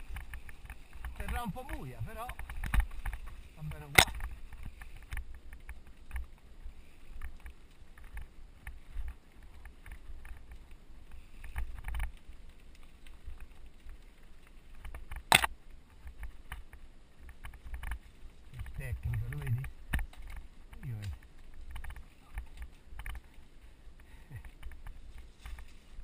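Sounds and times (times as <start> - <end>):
bike rattling: 0.0 - 26.0.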